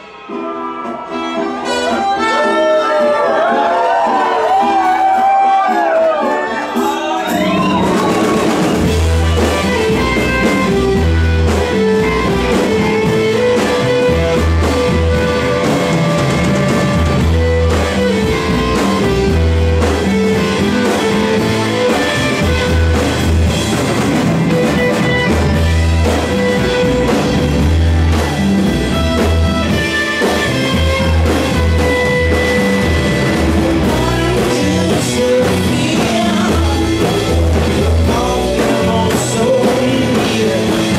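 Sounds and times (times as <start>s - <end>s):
rock band playing: 0.0s - 40.9s
heavy bass pulse: 7.4s - 29.7s.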